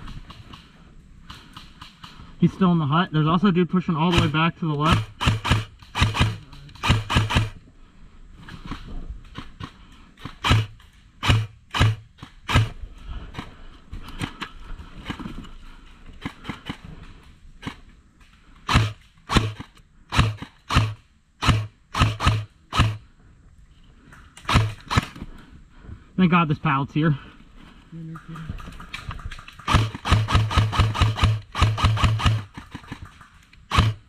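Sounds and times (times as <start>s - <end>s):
airsoft rifle shots: 0.0s - 2.8s, 3.8s - 7.6s, 8.6s - 13.6s, 18.6s - 23.0s, 24.4s - 25.2s, 28.1s - 34.0s.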